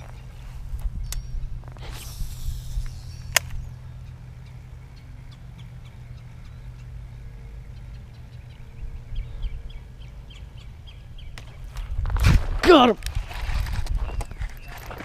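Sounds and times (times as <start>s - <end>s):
sharp click: 1.9s - 3.7s.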